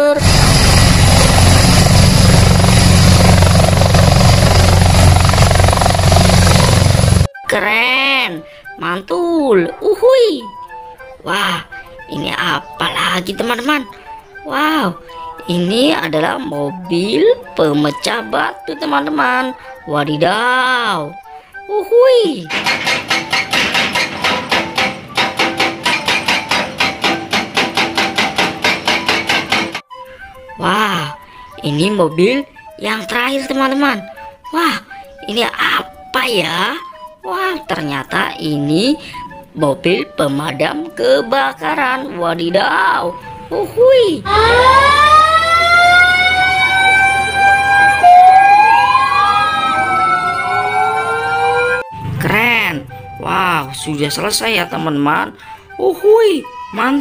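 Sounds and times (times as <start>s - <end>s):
hydraulic breaker pounding rock: 22.5s - 29.8s
rising siren tone: 44.2s - 53.9s
fire engine siren wailing: 44.2s - 54.7s.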